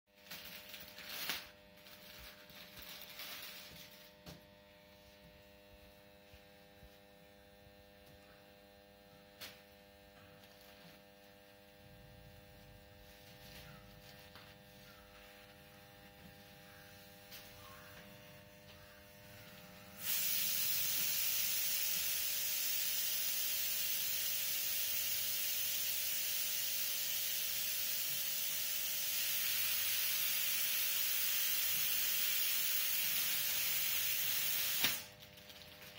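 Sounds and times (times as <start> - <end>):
electrical hum: 0.1 - 35.9
loud steady hiss: 19.9 - 35.1.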